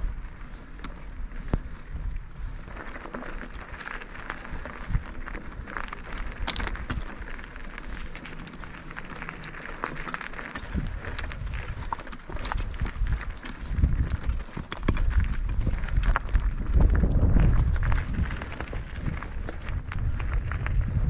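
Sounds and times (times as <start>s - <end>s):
bike rattling over stones: 0.0s - 21.0s
bike tyres crunching on gravel: 0.0s - 21.0s
wind on microphone: 10.4s - 21.0s.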